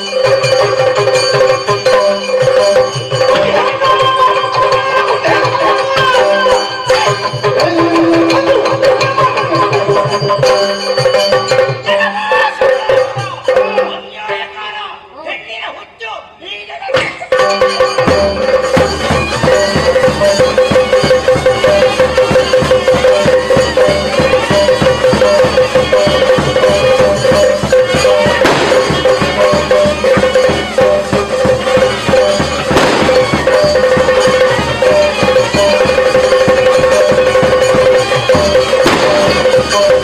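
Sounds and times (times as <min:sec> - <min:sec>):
fast drum rhythm: 0:00.0 - 0:14.1, 0:17.0 - 0:40.0
loud crashing drum strokes: 0:23.6 - 0:40.0.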